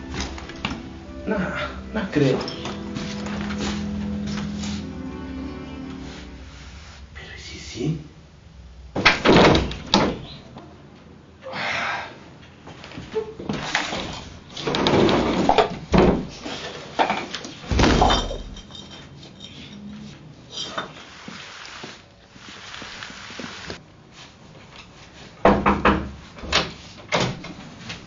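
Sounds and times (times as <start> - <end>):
knocks and bangs on wooden wardrobe: 9.0 - 10.2, 14.6 - 16.3, 17.7 - 18.5, 25.4 - 27.6.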